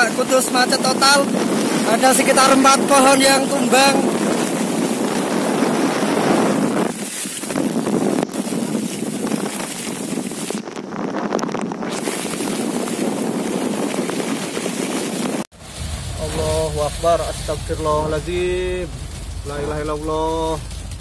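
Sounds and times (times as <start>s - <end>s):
heavy rain downpour: 0.0s - 10.6s, 15.1s - 21.0s
wind buffeting microphone: 0.0s - 21.0s.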